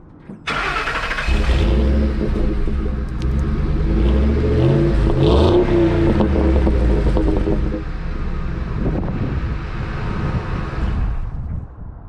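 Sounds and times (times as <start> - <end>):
starter cranking engine: 0.5 - 3.4
engine running and revving: 1.0 - 11.4.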